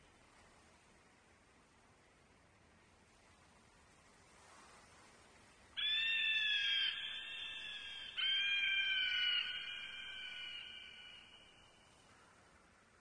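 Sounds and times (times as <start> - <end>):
eagle calling: 5.8 - 11.7.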